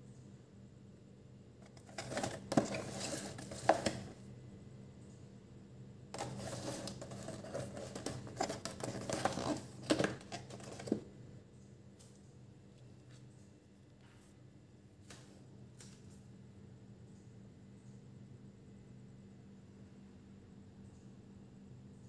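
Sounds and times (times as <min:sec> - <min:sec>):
cardboard box rustling and scraping: 0:01.6 - 0:04.1, 0:06.2 - 0:11.0.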